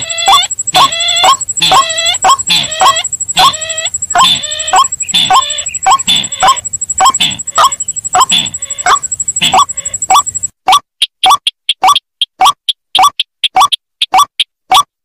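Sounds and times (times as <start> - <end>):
thin high-pitched tone: 0.0 - 10.5
rapid upslurred bird calls: 0.0 - 14.5.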